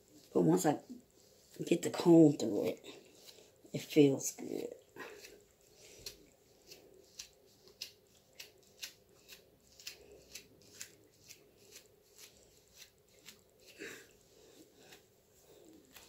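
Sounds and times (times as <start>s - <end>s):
comb scratching through hair: 0.0s - 16.0s.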